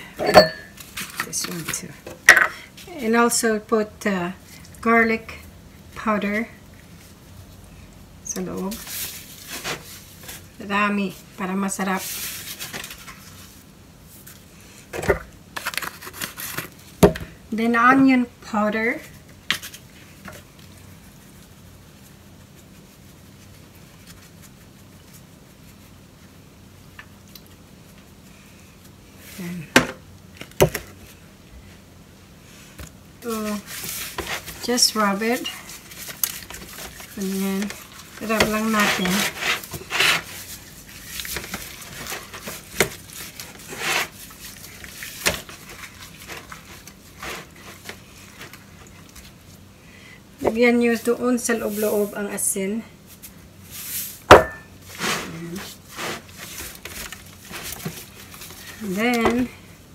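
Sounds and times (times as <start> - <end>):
low steady hum: 0.0 - 59.9
hands rubbing meat: 21.0 - 26.3, 33.3 - 49.7
foil pan crinkling and clicking: 35.7 - 49.3.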